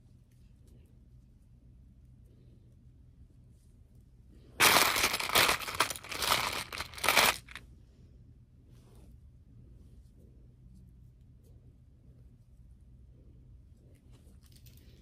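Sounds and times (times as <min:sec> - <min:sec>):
rustling and crinkling handling noise: 0:04.6 - 0:07.6.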